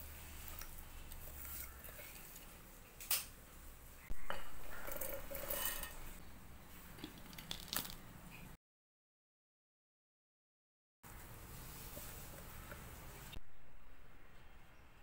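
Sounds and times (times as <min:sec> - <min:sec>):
utensils clanking on metal jar: 0:04.2 - 0:06.2.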